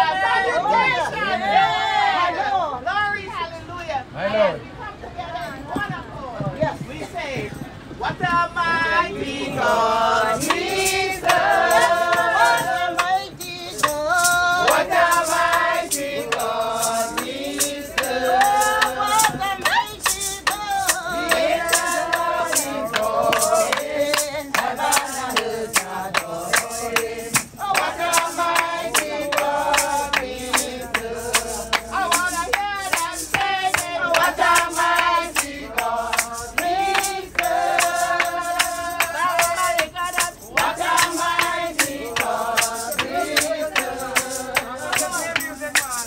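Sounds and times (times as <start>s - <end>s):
group singing gospel chorus: 0.0s - 2.8s, 8.3s - 46.0s
rhythmic hand-clapping: 9.2s - 46.0s.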